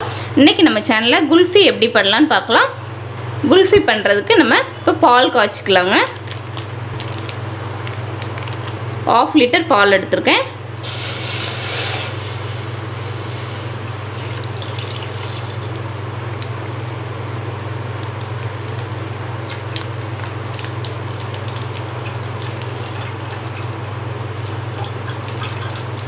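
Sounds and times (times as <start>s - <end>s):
milk pouring into saucepan: 10.9s - 16.4s.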